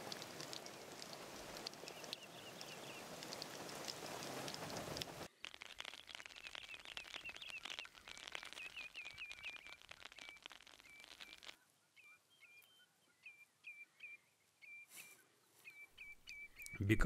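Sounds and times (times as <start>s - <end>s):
light rain pattering: 0.0s - 11.6s.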